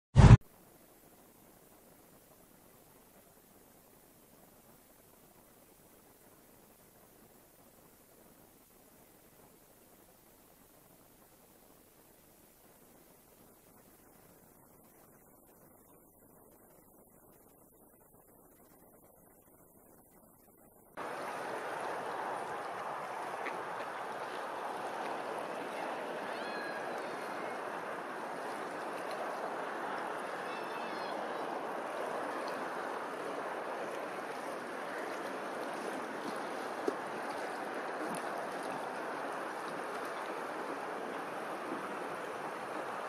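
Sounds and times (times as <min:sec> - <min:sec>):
small waves lapping: 0:21.0 - 0:43.0.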